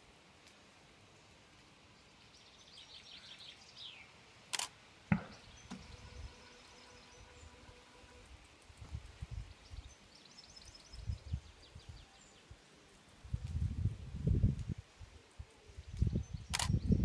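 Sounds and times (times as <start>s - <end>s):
faint steady hum: 0.0s - 11.4s
camera shutter click: 4.5s - 4.8s, 16.5s - 16.8s
sharp knock: 5.1s - 5.8s
faint bird chirps: 5.2s - 8.4s, 9.2s - 13.0s.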